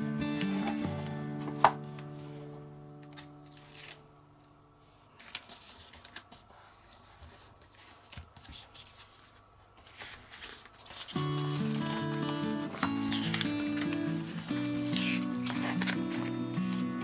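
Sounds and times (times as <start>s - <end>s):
background music: 0.0s - 3.2s, 11.2s - 17.0s
paper crackling and rustling: 0.4s - 4.1s, 4.8s - 17.0s.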